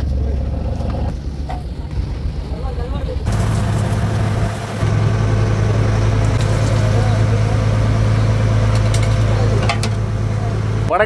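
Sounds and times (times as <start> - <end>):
boat engine humming: 0.0 - 11.0
steady rushing noise: 0.4 - 8.0.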